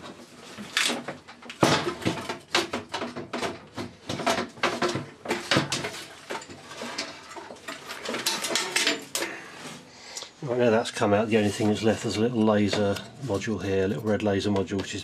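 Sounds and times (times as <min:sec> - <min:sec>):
metal chassis clattering against case: 0:00.6 - 0:09.2.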